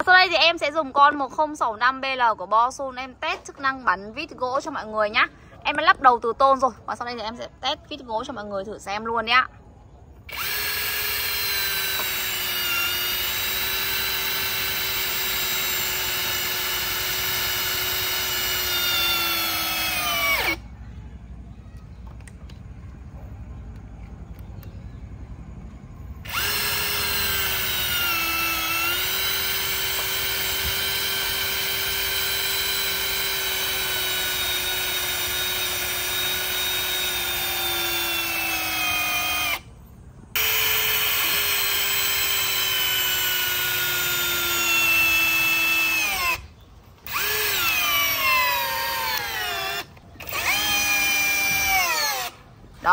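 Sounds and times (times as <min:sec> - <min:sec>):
cordless drill motor whine: 0:10.3 - 0:20.6, 0:26.2 - 0:39.7, 0:40.4 - 0:52.4.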